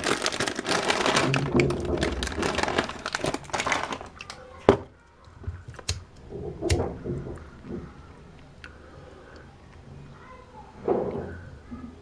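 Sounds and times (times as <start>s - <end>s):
plastic snack bag crinkling: 0.0s - 4.8s.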